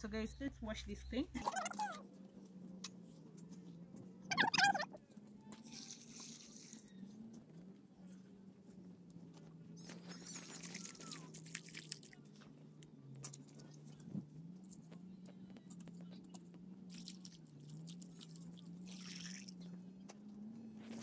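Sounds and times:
hand swishing leaves in water: 5.6s - 6.9s, 10.0s - 12.3s, 16.9s - 19.6s
wet leaves crunching: 10.1s - 12.4s
water splashing onto leaves: 10.2s - 12.3s, 16.9s - 19.6s.

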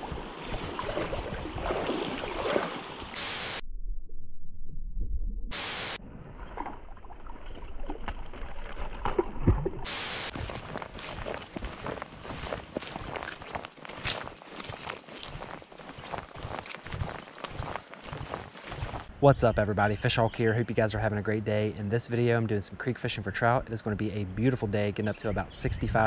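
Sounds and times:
creek water: 0.0s - 3.6s, 5.5s - 25.5s
wind: 0.0s - 26.0s
static hiss bursts: 3.2s - 3.6s, 5.5s - 6.0s, 9.9s - 10.4s.

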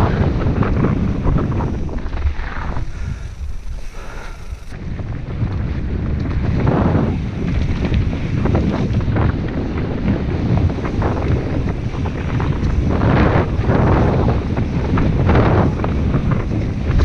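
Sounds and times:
tyres rumbling on dirt trail: 0.0s - 17.0s
wind buffeting microphone: 0.0s - 17.0s.

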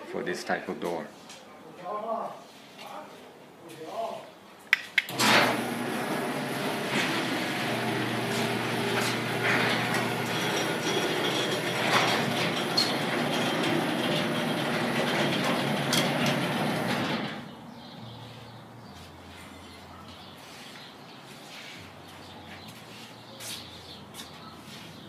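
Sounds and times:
garage door opener motor hum: 5.1s - 17.5s
rollers rattling along tracks: 7.8s - 17.5s.

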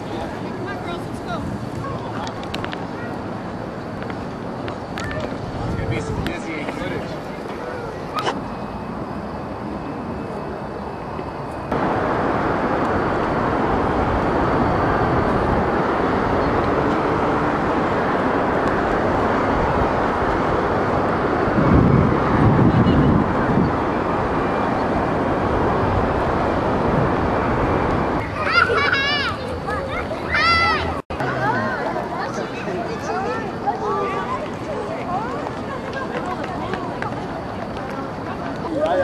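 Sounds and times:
wind rushing on microphone: 0.0s - 28.9s.

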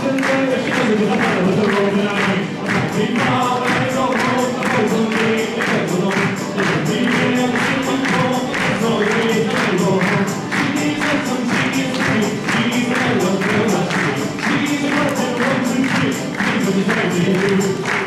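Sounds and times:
acoustic guitar: 0.0s - 18.0s
banjo: 0.0s - 18.0s
hand percussion beat: 0.0s - 18.0s.

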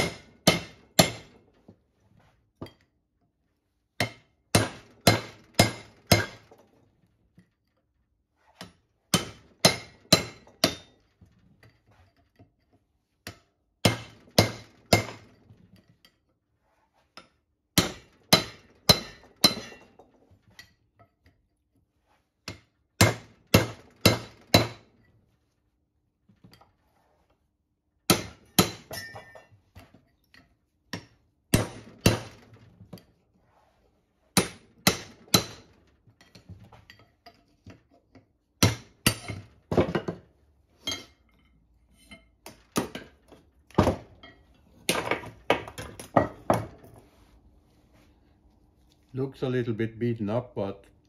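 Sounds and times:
hammer striking steel chisel: 0.0s - 1.4s, 4.0s - 6.6s, 8.6s - 11.0s, 13.2s - 15.4s, 17.2s - 20.0s, 22.4s - 25.0s, 28.1s - 33.1s, 34.4s - 40.0s.

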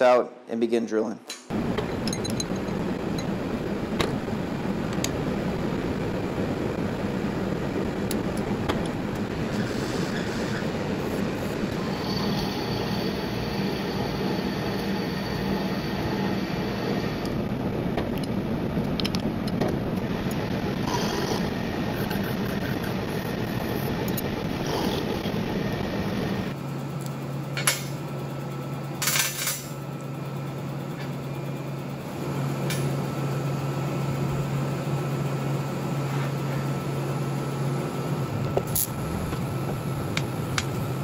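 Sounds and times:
metal lathe running: 9.0s - 17.4s
high whine of tool cutting: 9.2s - 17.4s.

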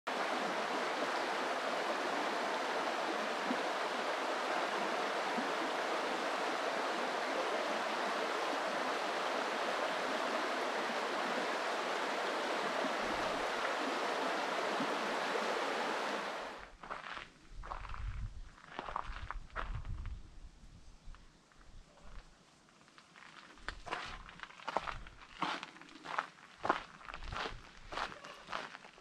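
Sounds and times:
river rapids rushing: 0.1s - 16.6s.

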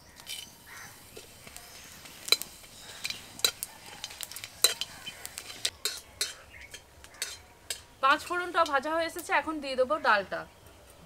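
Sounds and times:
seeds sizzling in hot oil: 0.0s - 10.0s
spatula clinking against pan: 4.6s - 5.0s, 5.8s - 7.9s.

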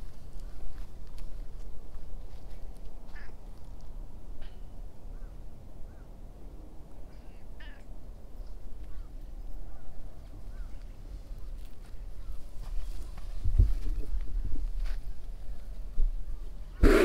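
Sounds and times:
short bird calls: 7.1s - 7.9s.

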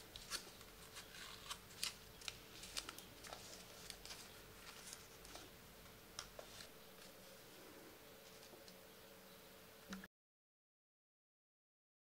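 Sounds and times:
paper crackling and rustling: 0.0s - 5.6s
faint steady hum: 0.0s - 10.1s.

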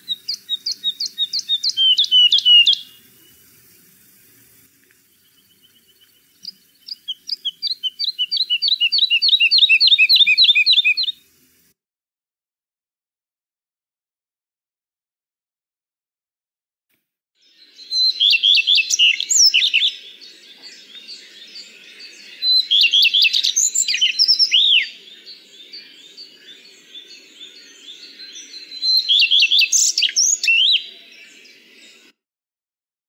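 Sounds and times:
bird singing: 0.0s - 11.2s, 17.4s - 32.2s.

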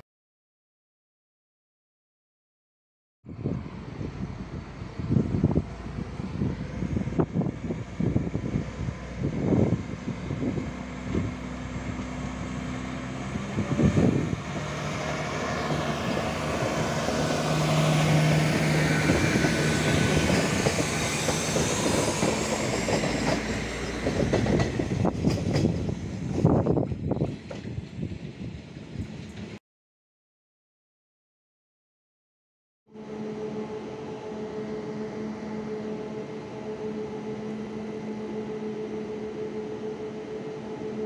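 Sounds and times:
diesel railcar engine: 3.3s - 29.6s, 33.0s - 41.0s
train wheels on rails: 4.3s - 29.6s.

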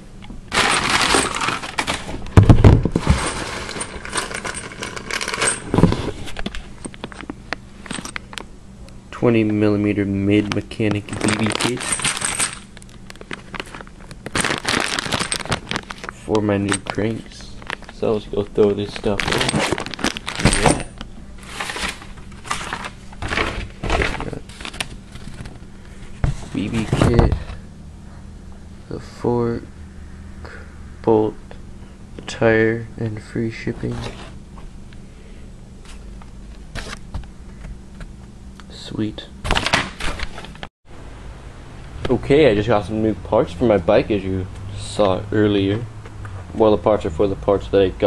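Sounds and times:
plastic packaging rustling: 0.5s - 6.5s, 11.0s - 25.6s
small hard parts rattling: 0.5s - 8.4s, 10.8s - 25.6s.

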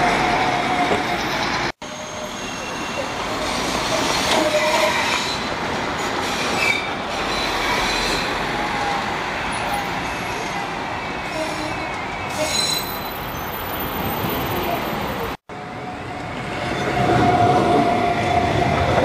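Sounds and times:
tram approaching: 0.0s - 19.0s
high wheel squeal: 0.3s - 15.0s.

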